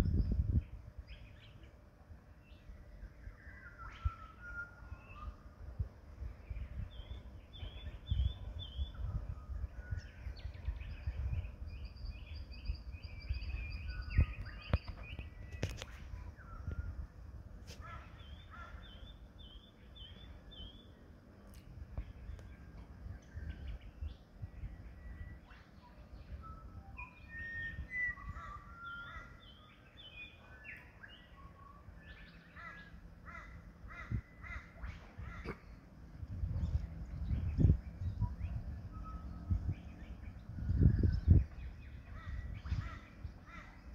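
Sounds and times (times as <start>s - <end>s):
birds twittering: 0.0s - 43.9s
birds calling: 17.6s - 21.2s, 27.0s - 43.9s
low background rumble: 31.2s - 43.9s.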